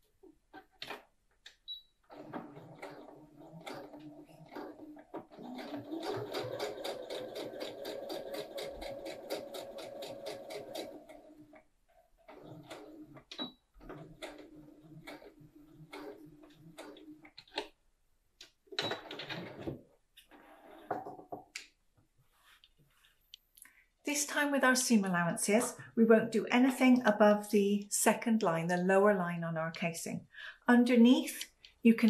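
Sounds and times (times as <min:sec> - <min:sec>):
sewing machine stitching: 0:02.1 - 0:11.6, 0:12.2 - 0:17.7.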